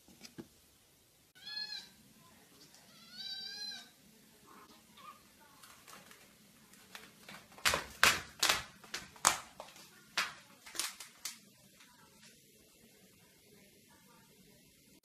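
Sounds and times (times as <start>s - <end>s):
kitten claws scratching plastic wrap: 5.6s - 11.4s.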